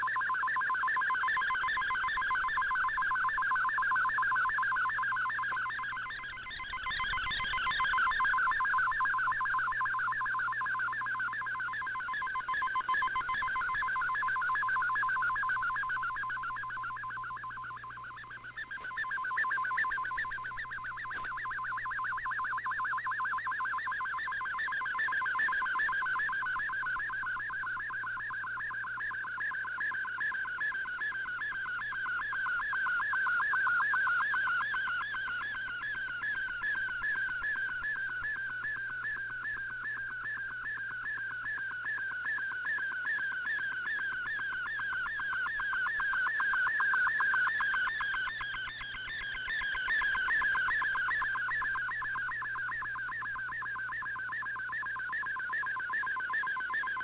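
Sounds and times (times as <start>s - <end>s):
faint steady hum: 0.0s - 57.0s
digital data warble tones: 4.3s - 11.0s, 11.8s - 27.0s, 43.2s - 53.8s.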